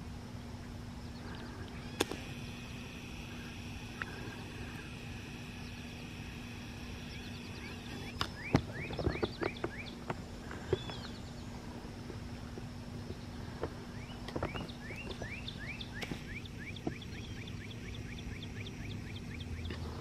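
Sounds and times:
rail machine engine idling: 0.0s - 18.5s
songbirds chirping: 0.0s - 20.0s
sharp clicks: 1.3s - 2.4s.

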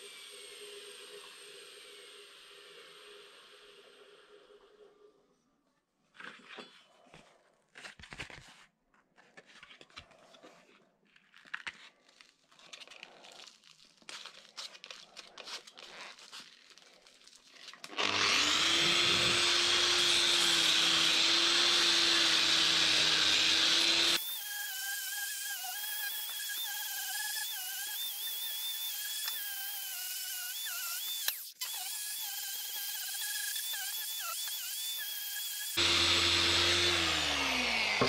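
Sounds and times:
scratching and handling noises: 6.0s - 18.1s
angle grinder whining: 17.9s - 38.0s.

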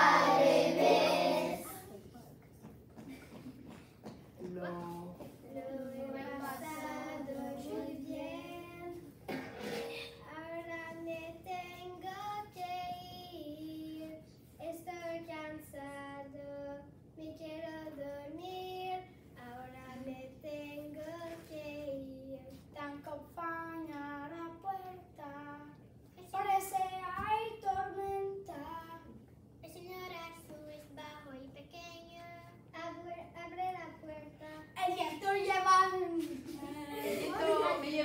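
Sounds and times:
child singing: 0.0s - 2.0s, 5.4s - 9.1s, 10.2s - 38.0s.

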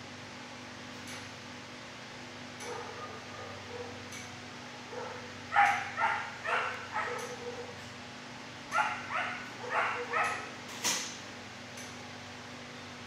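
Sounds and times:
dog barking: 2.6s - 4.0s, 4.9s - 7.8s, 8.7s - 10.5s
sharp click: 10.2s - 11.2s.

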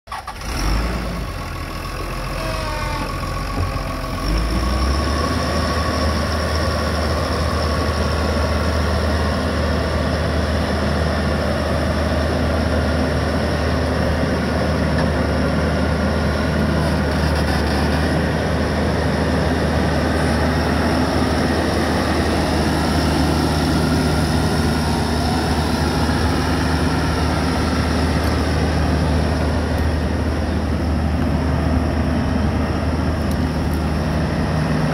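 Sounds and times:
diesel engine humming: 0.1s - 34.9s.

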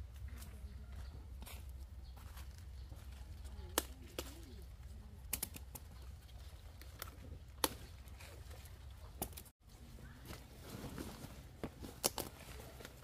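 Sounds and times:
peppers snapping off stems: 3.7s - 4.6s, 5.2s - 8.2s, 12.0s - 12.4s.

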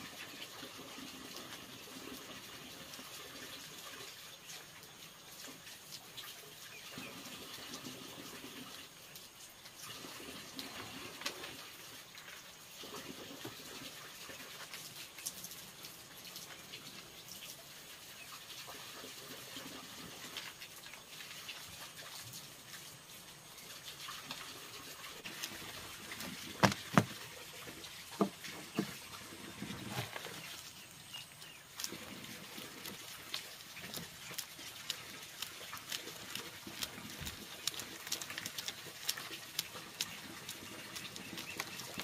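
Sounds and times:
water trickling: 0.0s - 42.0s
sharp knocks: 26.6s - 27.2s.

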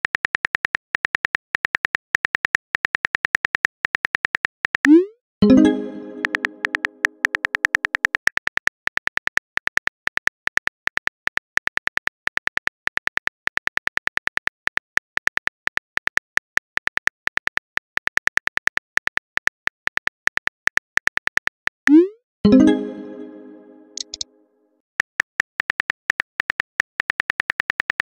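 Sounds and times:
phone keyboard clicks: 24.0s - 24.2s.

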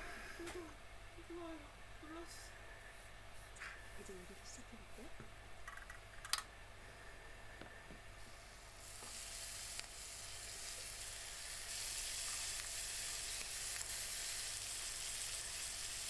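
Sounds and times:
prawns sizzling in frying pan: 8.2s - 16.0s.

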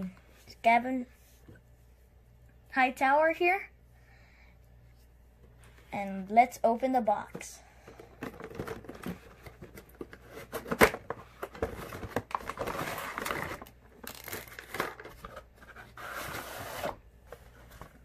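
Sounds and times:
rustling packaging: 8.1s - 18.0s.

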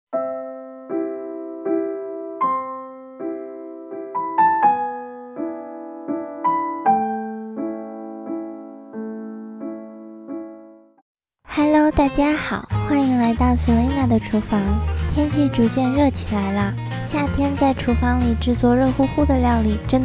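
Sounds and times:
piano chords: 0.1s - 11.0s.

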